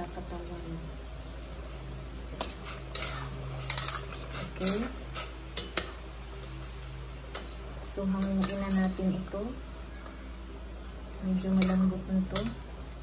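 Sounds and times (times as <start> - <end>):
metal utensil clinking on pot: 8.2 - 9.2.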